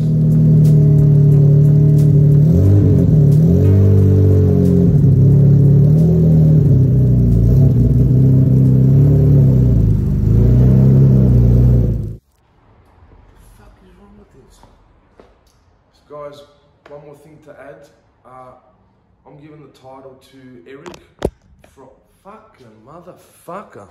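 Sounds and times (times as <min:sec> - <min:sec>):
car engine idling: 0:00.0 - 0:12.2
engine revving: 0:00.0 - 0:12.2.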